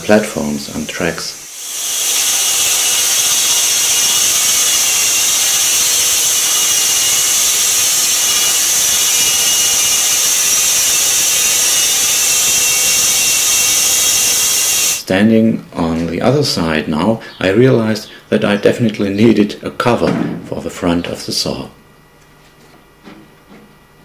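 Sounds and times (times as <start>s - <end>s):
band sawmill cutting log: 0.2s - 15.1s.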